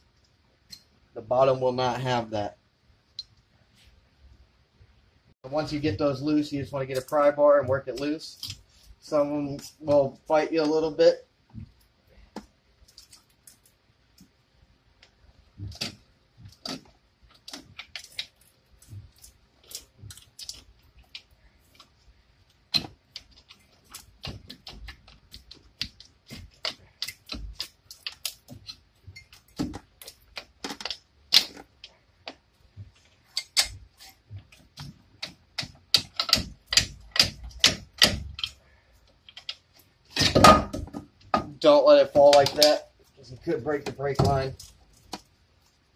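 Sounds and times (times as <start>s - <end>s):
metallic clicks and knocks: 33.3s - 38.6s.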